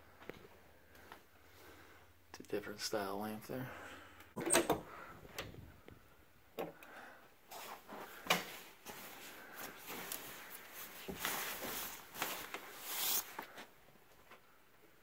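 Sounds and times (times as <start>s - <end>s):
fabric rustling: 7.5s - 13.7s.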